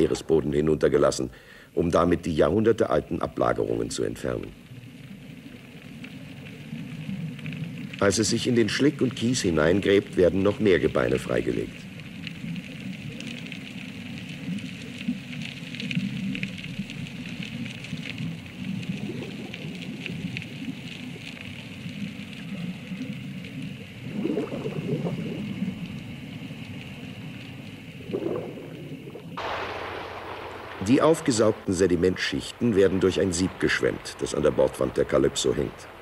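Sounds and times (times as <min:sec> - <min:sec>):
gurgling swells: 0:12.9 - 0:21.2, 0:21.9 - 0:36.0.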